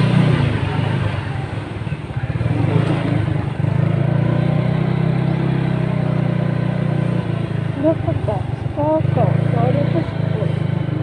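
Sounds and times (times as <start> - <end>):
small motorcycle engine running: 0.0 - 11.0.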